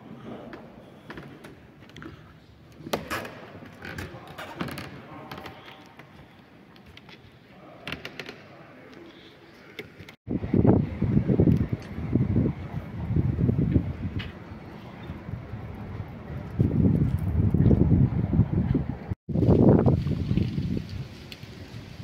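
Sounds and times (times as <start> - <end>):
wind buffeting microphone: 10.3 - 22.0.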